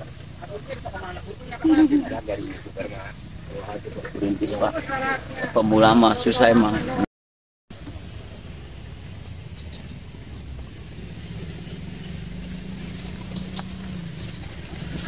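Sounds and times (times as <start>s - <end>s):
low engine rumble: 0.0s - 7.0s, 7.7s - 15.0s
faint high chirps: 9.4s - 13.8s.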